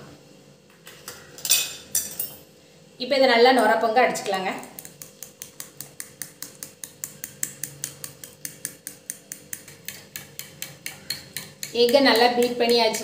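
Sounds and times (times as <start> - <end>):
eggs beaten in a bowl: 4.3 - 13.0.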